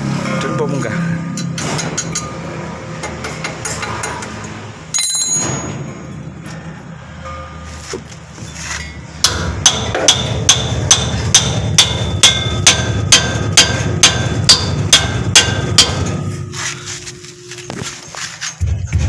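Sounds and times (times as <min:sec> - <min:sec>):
hammer ringing on metal: 0:09.0 - 0:16.4.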